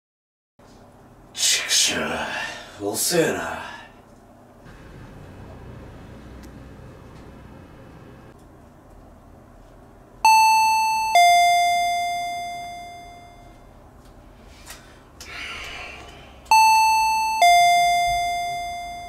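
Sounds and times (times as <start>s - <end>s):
electronic two-tone chime: 10.3s - 13.6s, 16.5s - 19.0s.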